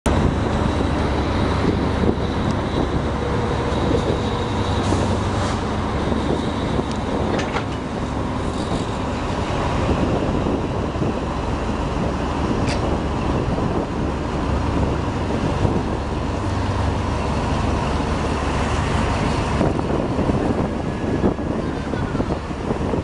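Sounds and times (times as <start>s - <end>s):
water rushing along train: 0.0s - 23.0s
train carriages rumbling: 0.1s - 23.0s.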